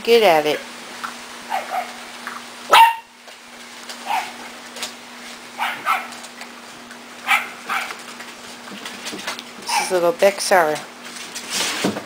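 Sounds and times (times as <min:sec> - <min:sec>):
puppies yipping and barking: 0:01.5 - 0:03.2, 0:03.9 - 0:04.5, 0:05.5 - 0:08.4, 0:09.6 - 0:10.1.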